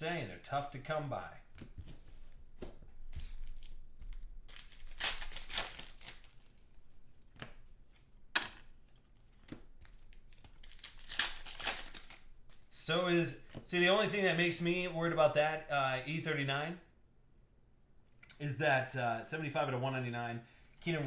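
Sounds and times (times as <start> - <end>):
foil wrapper tearing and crinkling: 4.4 - 6.6, 10.0 - 12.4.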